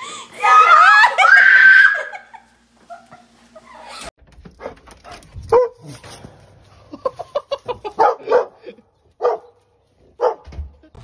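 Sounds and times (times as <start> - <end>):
dog barking and yelping: 7.8 - 9.6.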